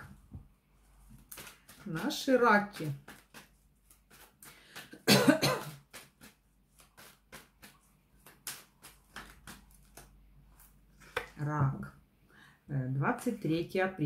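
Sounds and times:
woman coughing: 5.0 - 5.8.

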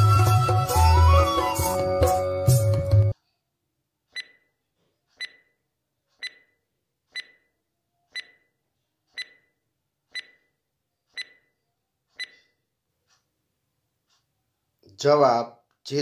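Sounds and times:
ringing timer ticks: 5.2 - 5.5, 6.2 - 7.5, 8.2 - 8.4, 9.1 - 9.5, 10.1 - 10.4, 11.1 - 11.5, 12.2 - 12.4.

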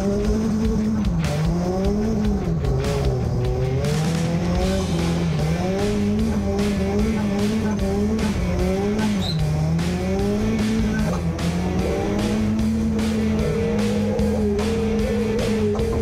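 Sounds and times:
car engine revving: 0.0 - 16.0
tyres squealing: 5.8 - 16.0.

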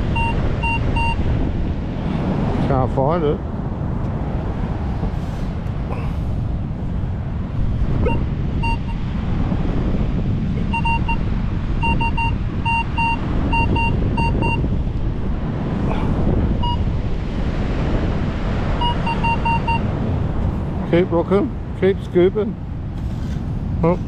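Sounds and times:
metal detector beeping: 0.0 - 1.2, 8.0 - 9.0, 10.7 - 11.2, 11.8 - 14.6, 16.6 - 16.9, 18.8 - 19.9
wind rumble on microphone: 0.0 - 24.0.

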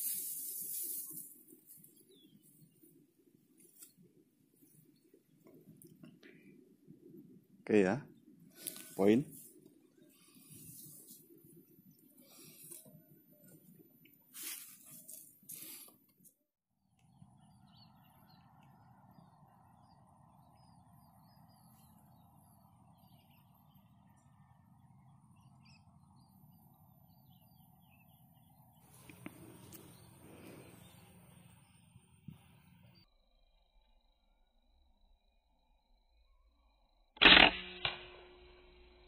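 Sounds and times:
small birds chirping: 0.0 - 6.6, 17.0 - 33.1.

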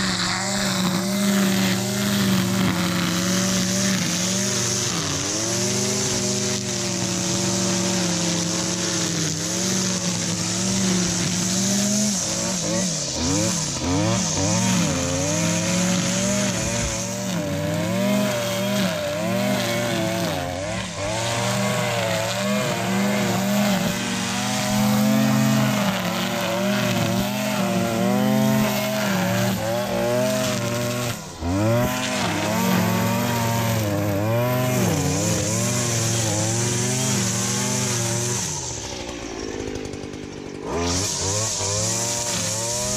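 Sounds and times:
string trimmer cutting grass: 0.0 - 42.9.

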